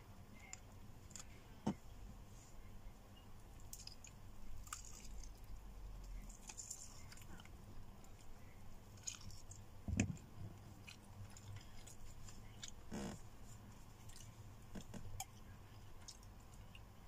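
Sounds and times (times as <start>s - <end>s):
person chewing food: 3.7s - 8.3s, 8.9s - 16.9s.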